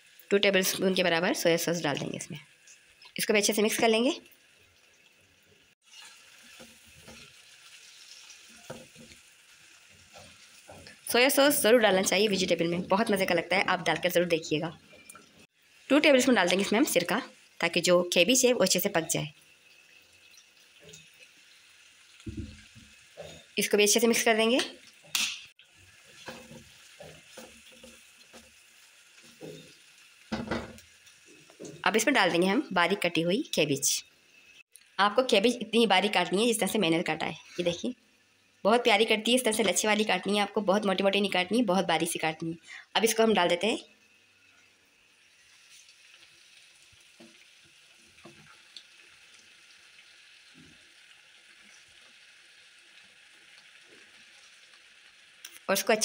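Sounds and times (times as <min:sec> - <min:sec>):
faint sizzle: 0:00.0 - 0:56.0
spatula scraping a wok: 0:05.8 - 0:12.5, 0:25.7 - 0:31.9.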